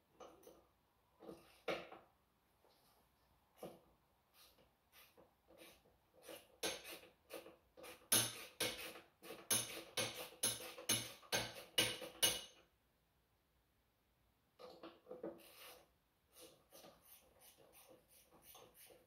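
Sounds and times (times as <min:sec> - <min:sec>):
hand tool scraping metal: 0:04.4 - 0:12.6, 0:14.6 - 0:19.0.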